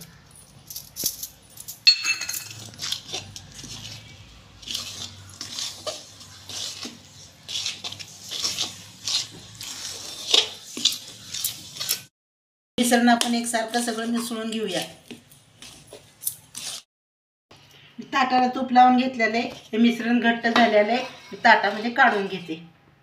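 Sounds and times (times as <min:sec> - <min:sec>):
spoon scraping metal pan: 0:02.5 - 0:12.1, 0:20.5 - 0:22.5.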